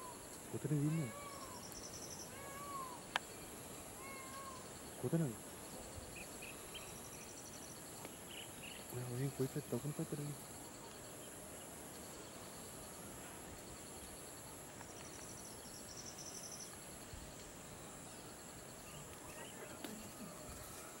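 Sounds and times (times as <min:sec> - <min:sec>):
pulsing insect trill: 0:00.0 - 0:21.0
shrill insect chorus: 0:00.0 - 0:21.0.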